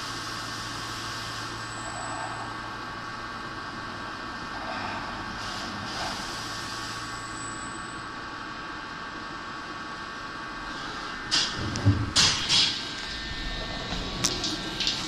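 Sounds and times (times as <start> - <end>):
milling machine whine: 10.4 - 15.0
loud knocks: 11.3 - 12.8.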